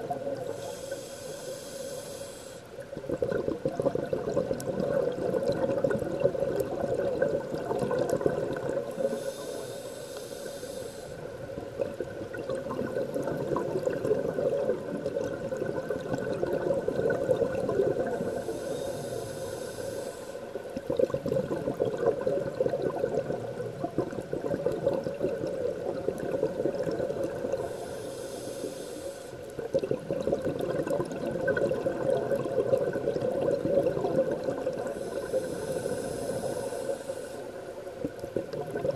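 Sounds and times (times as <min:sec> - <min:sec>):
hissing regulator breaths: 0:00.4 - 0:02.8, 0:09.0 - 0:11.3, 0:18.1 - 0:20.6, 0:27.6 - 0:29.5, 0:34.8 - 0:37.7
bubbling of exhaled air: 0:02.8 - 0:10.6, 0:11.7 - 0:38.9.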